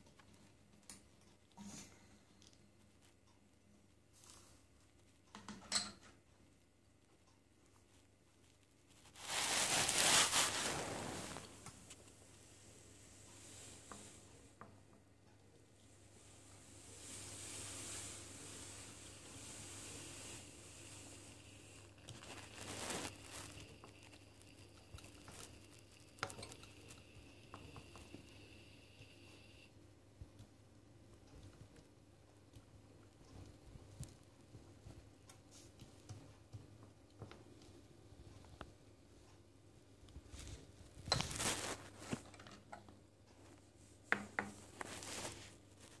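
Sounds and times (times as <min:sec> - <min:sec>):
glass clicking and tapping on metal: 0:05.3 - 0:06.1
espresso pouring hiss: 0:12.4 - 0:14.5, 0:16.0 - 0:29.7.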